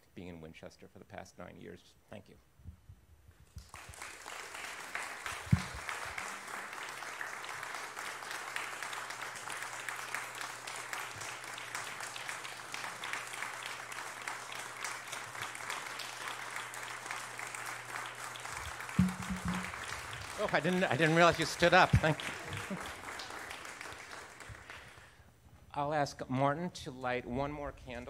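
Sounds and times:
congregation applauding: 3.6 - 25.2
loud thump: 5.5 - 5.8, 19.0 - 19.8.

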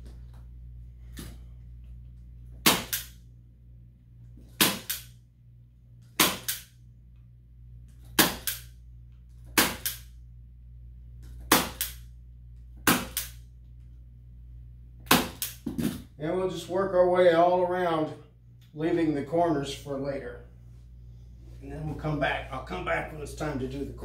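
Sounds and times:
staple gun firing: 6.2 - 6.7, 15.1 - 15.6.

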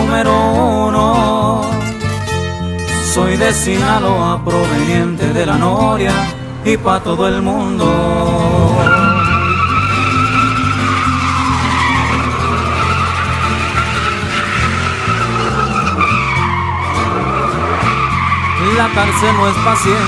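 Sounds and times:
pickup engine revving: 3.3 - 20.0
tire squeal: 5.7 - 20.0.

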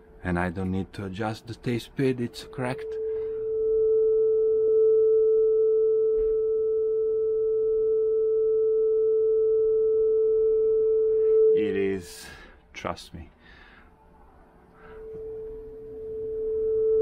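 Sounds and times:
steady test tone from loudspeaker: 2.2 - 11.9.

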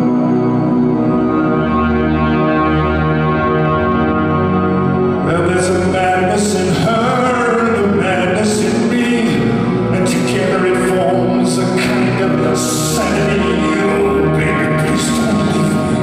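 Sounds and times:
held keyboard drone: 0.0 - 16.0
man singing: 5.2 - 16.0.

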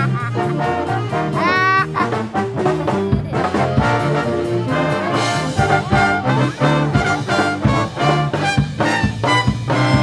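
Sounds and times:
big band brass playing: 0.0 - 10.0
drum kit beat: 0.0 - 10.0.

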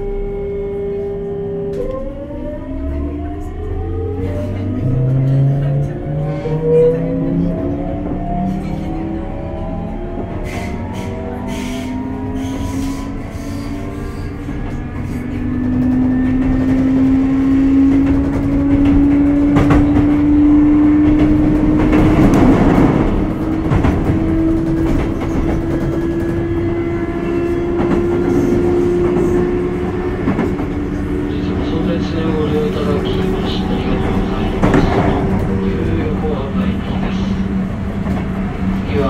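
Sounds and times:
train wheels rumbling: 0.0 - 39.0
clacks at rail joints: 14.5 - 26.7.

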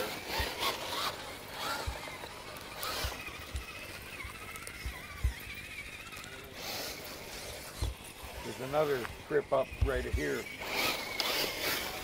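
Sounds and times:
small electric motors whining: 0.0 - 12.0.

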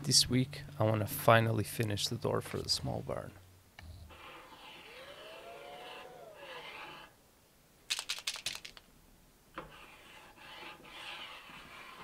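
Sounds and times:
marker scratching on metal: 4.1 - 7.1, 9.6 - 12.0
sharp clicks: 7.9 - 8.9.

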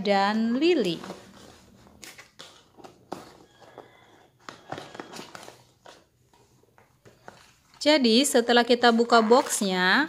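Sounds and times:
packaging rustling: 0.7 - 7.9.

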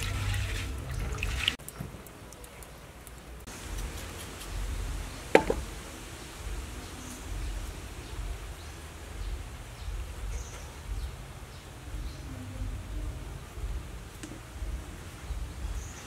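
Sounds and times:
low rumble: 4.5 - 15.8
sharp double knock: 5.4 - 5.7.

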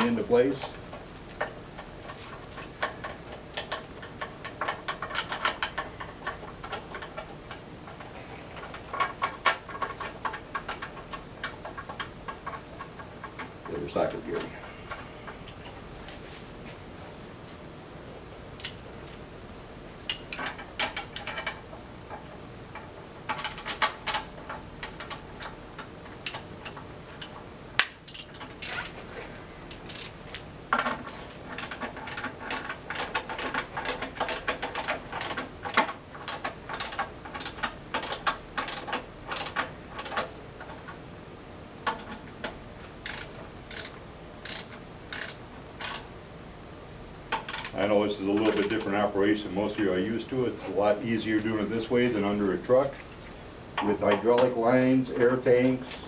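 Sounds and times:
ratchet wrench clicking: 26.2 - 29.0, 29.7 - 30.2, 31.6 - 40.2, 43.0 - 46.1, 47.4 - 47.8, 48.4 - 48.7.

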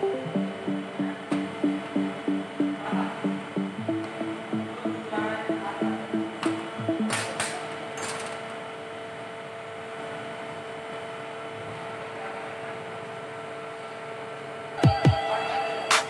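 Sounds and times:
faint hum: 0.0 - 10.3.

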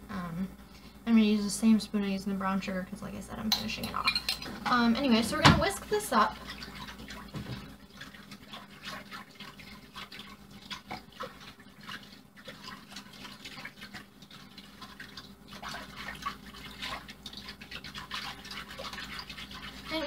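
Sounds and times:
whisk sloshing sauce: 5.0 - 20.0.

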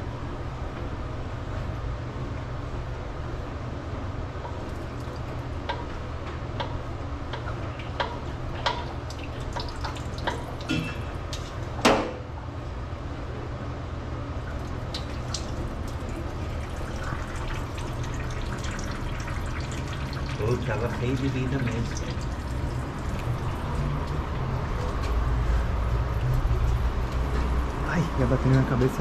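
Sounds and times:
oil draining and dripping: 4.4 - 12.1, 14.3 - 29.0.

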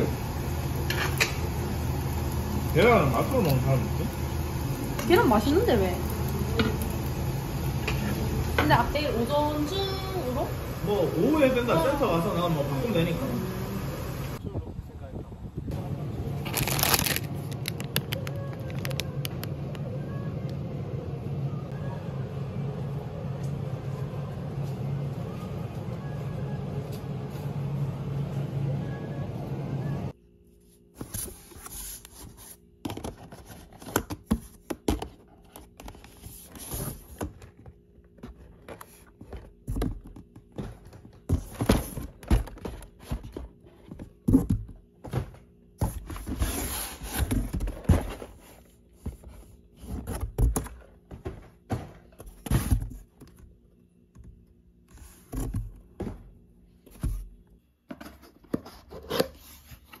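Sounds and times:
cardboard scraping and rustling: 16.5 - 17.8, 30.9 - 53.1.

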